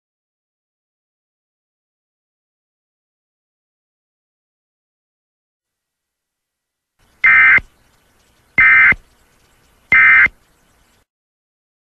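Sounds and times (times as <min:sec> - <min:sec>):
two-tone digital data bursts: 0:07.2 - 0:07.7, 0:08.6 - 0:09.0, 0:09.9 - 0:10.4.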